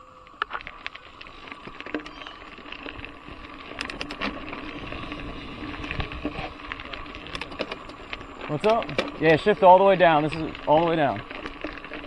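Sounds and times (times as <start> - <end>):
bike clicks and rattles: 0.4 - 12.0
tyres rumbling on dirt: 1.2 - 12.0.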